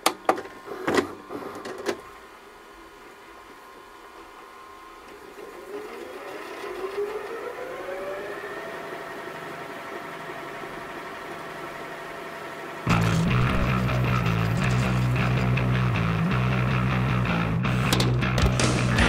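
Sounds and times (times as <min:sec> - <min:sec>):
loud rock music with guitar: 0:12.9 - 0:19.0.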